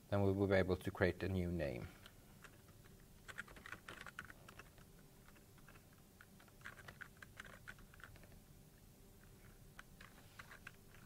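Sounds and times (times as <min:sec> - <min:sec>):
typing on computer keyboard: 0:02.4 - 0:08.4, 0:09.8 - 0:11.0.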